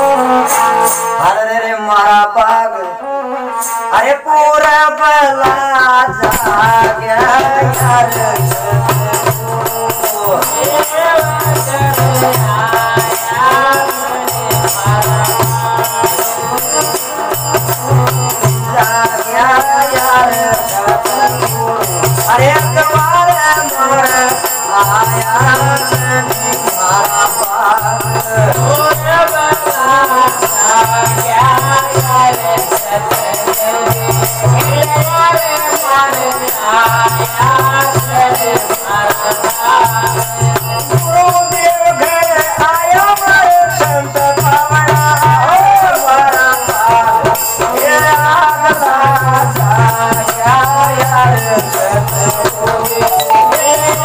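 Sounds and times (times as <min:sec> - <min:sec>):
men singing: 0:00.0 - 0:54.0
bells jingling on bow: 0:50.5 - 0:54.0.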